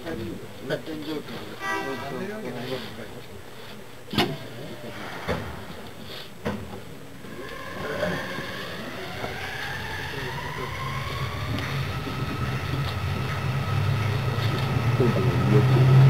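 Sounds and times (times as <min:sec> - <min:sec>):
train running gear rumble: 0:05.1 - 0:16.0
train motor whine rising: 0:07.2 - 0:16.0.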